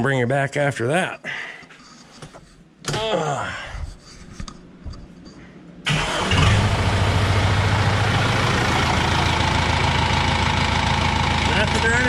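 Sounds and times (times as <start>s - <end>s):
diesel engine starting and idling: 5.9s - 12.0s.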